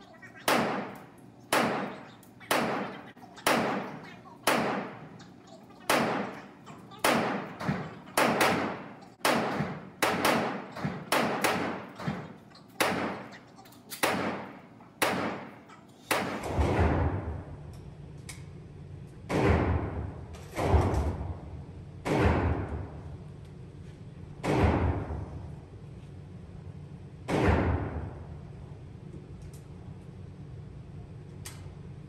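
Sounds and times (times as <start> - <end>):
echoing gunshots: 0.4 - 5.2, 5.9 - 13.3, 14.0 - 17.6, 19.3 - 23.0, 24.4 - 25.4, 27.3 - 28.4.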